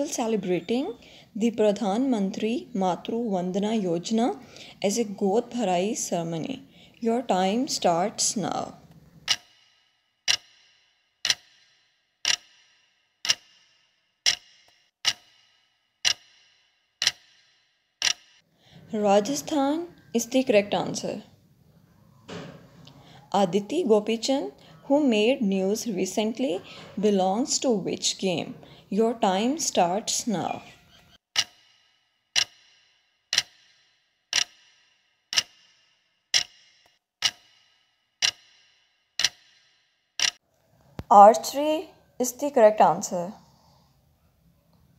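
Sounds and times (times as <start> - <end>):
clock ticking: 7.0 - 18.4, 29.3 - 40.4.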